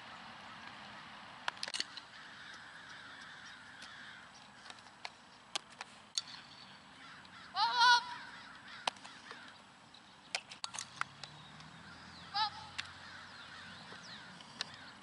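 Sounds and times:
faint outdoor hiss: 0:00.0 - 0:15.0.

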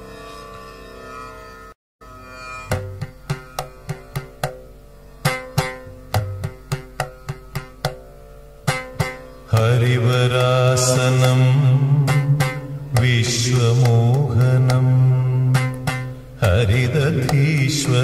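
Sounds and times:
plucked strings: 0:00.0 - 0:18.0
drum strokes: 0:02.5 - 0:18.0
man singing: 0:09.5 - 0:18.0.

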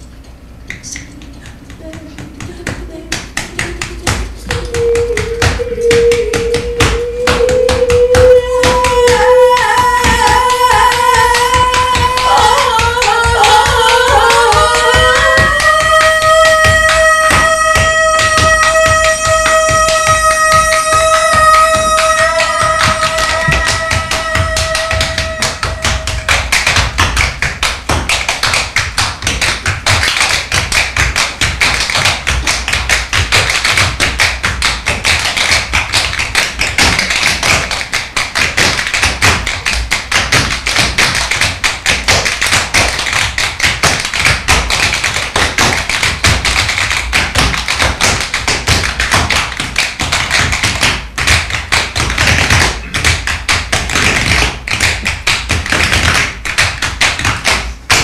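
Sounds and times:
tap shoes on stage floor: 0:00.7 - 0:58.0.

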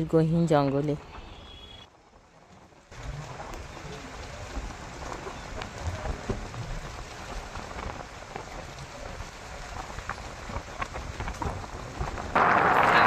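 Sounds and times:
tyres crackling on gravel: 0:01.0 - 0:13.0
wind on microphone: 0:03.0 - 0:13.0.

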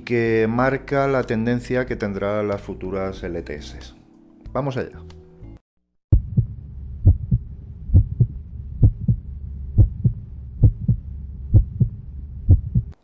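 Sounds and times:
heartbeat thumps: 0:06.1 - 0:13.0
steady low hum: 0:06.1 - 0:13.0.

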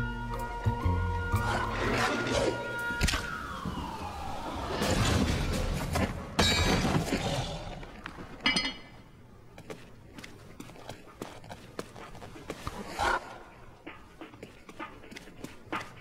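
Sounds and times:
noisy crash and clatter: 0:04.6 - 0:07.4.

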